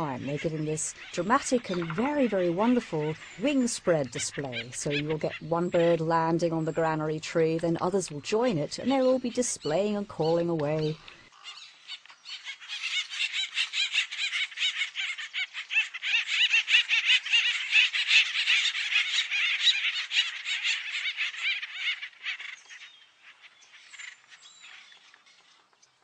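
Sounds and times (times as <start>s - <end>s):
woodpeckers chattering calls: 0.0s - 26.0s.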